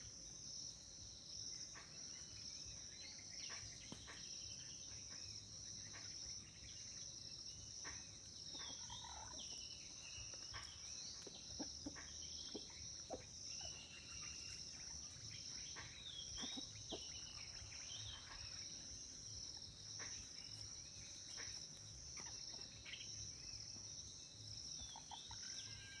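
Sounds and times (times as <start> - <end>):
high-pitched insect chorus: 0.0 - 26.0.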